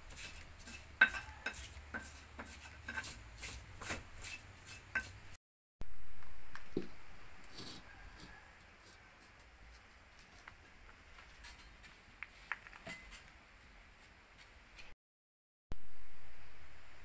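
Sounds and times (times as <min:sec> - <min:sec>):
pestle knocking in a mortar: 0:00.2 - 0:04.0.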